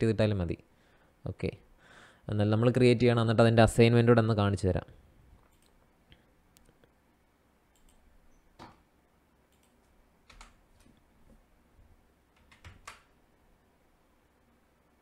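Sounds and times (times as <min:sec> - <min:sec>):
keyboard and mouse clicks: 0:05.4 - 0:05.8, 0:07.7 - 0:08.8, 0:09.5 - 0:11.0, 0:12.3 - 0:13.1.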